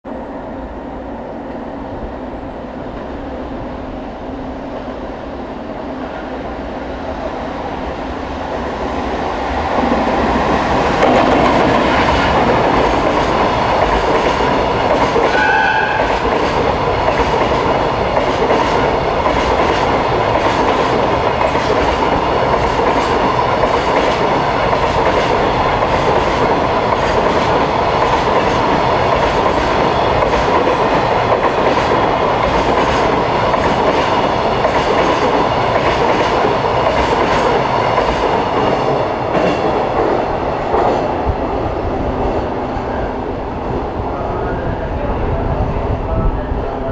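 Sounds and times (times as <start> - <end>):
freight train rumble: 0.0 - 46.9
wheels clacking on rails: 8.4 - 42.5.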